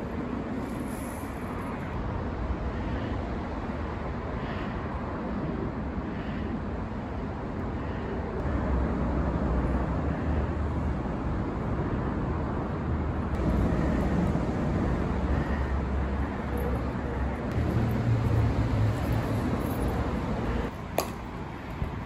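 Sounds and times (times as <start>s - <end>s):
road noise hiss: 0.0s - 22.0s
traffic rumble: 0.0s - 22.0s.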